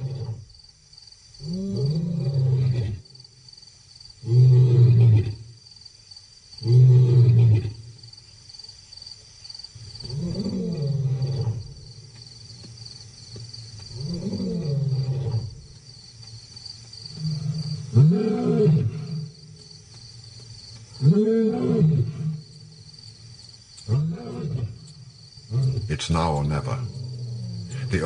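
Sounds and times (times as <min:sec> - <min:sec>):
lion roaring: 0:00.0 - 0:00.4, 0:10.0 - 0:11.8, 0:13.9 - 0:15.6, 0:17.1 - 0:19.4, 0:21.0 - 0:22.4, 0:23.9 - 0:24.8, 0:25.5 - 0:28.0.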